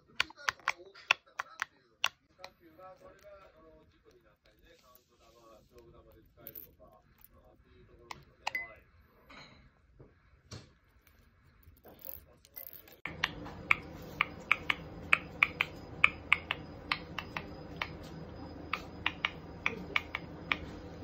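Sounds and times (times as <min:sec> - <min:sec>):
parrot clicking: 0:00.0 - 0:02.6, 0:13.1 - 0:20.7
low hum: 0:13.1 - 0:21.0.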